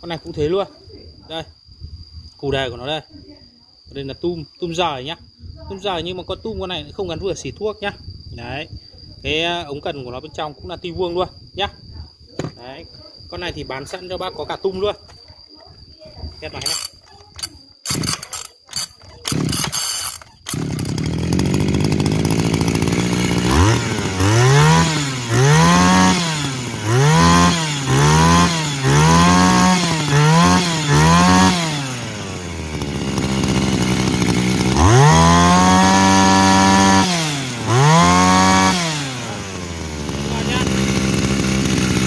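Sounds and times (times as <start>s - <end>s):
recoil starter pulls: 16.6s - 42.0s
two-stroke engine revving: 17.8s - 42.0s.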